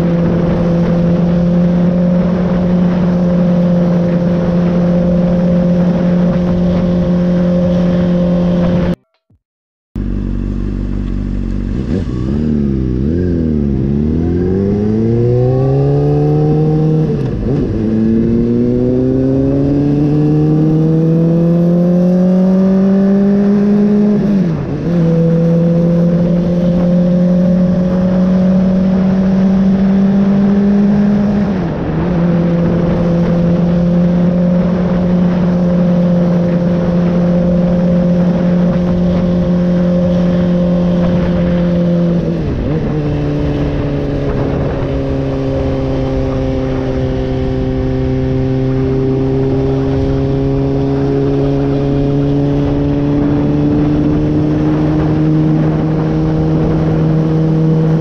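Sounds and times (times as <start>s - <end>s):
rushing wind and road noise: 0.0s - 9.0s, 10.0s - 58.0s
motorcycle engine revving: 0.0s - 9.4s, 10.0s - 58.0s.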